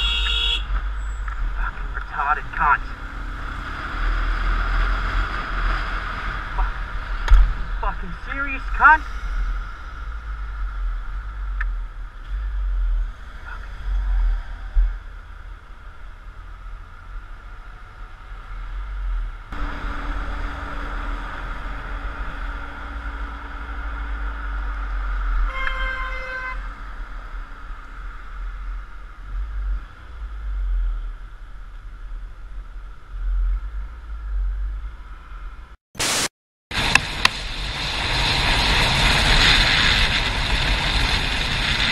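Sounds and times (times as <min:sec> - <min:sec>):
vehicle horn: 0:00.0 - 0:00.7, 0:25.5 - 0:26.7
wind rumble on microphone: 0:36.7 - 0:41.9.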